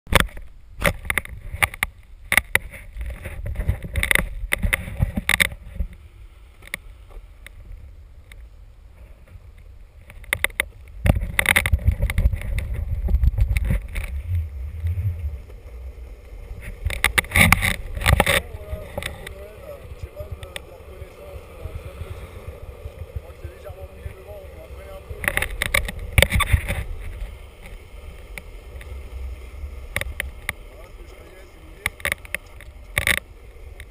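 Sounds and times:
longboard wheels rumbling over asphalt: 0.1 - 33.9
wind on microphone: 0.1 - 33.9
sharp knocks and clicks: 16.6 - 19.4, 25.2 - 26.8, 31.8 - 33.2.

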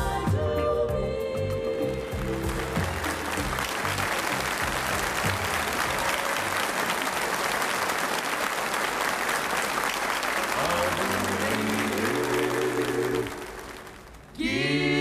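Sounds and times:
band low notes: 0.9 - 6.0
audience applauding: 2.0 - 14.4.

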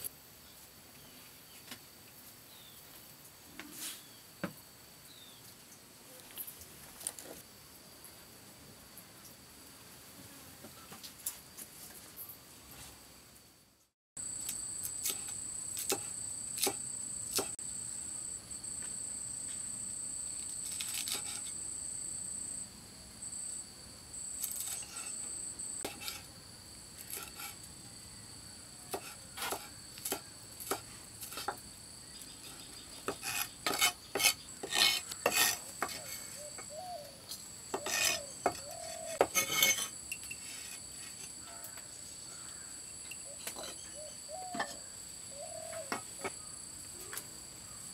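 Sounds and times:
insects droning: 0.0 - 47.9
cleaver chopping on wooden block: 15.0 - 17.6, 28.9 - 31.6.

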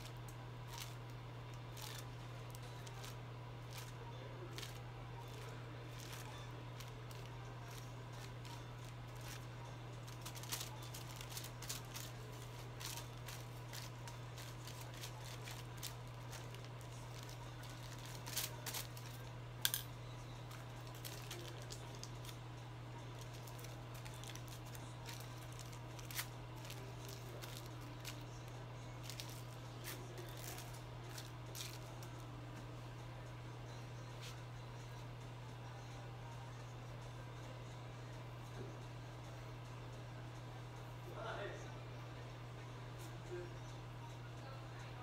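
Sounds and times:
foil crinkling and clicking: 0.0 - 19.8, 20.5 - 22.4, 23.1 - 28.3, 29.0 - 32.2
steady low hum: 0.0 - 45.0.

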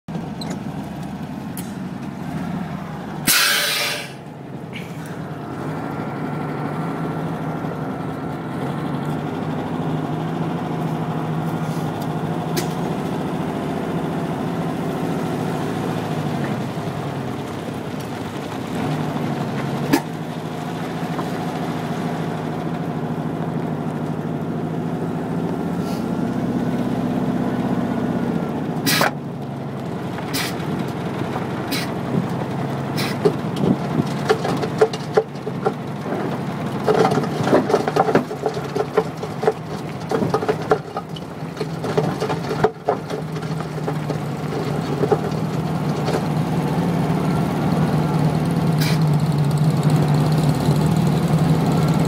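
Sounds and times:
air suspension hiss: 3.3 - 4.2, 28.9 - 29.1, 30.3 - 30.6.

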